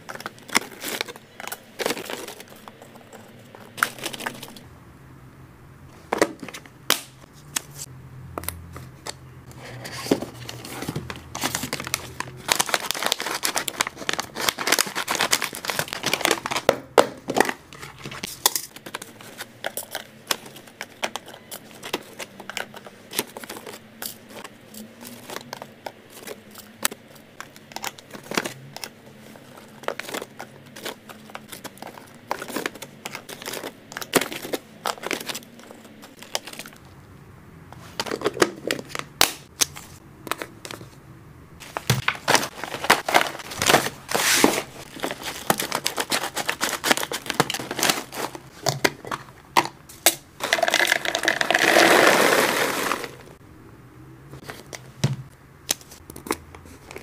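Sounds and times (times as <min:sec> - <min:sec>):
plastic packaging crinkling: 0:00.0 - 0:04.6, 0:10.0 - 0:16.7, 0:41.6 - 0:49.2, 0:50.4 - 0:53.4
plastic boxes and lids clicking: 0:41.6 - 0:53.3.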